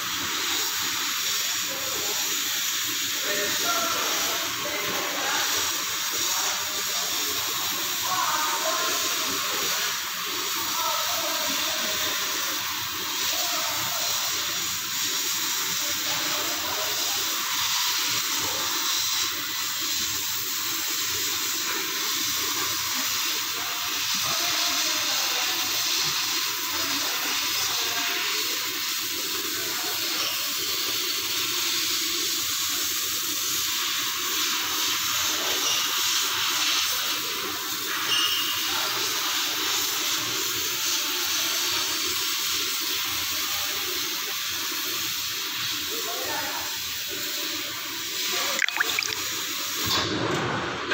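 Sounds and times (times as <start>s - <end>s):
gas jet hiss: 0.0s - 38.1s.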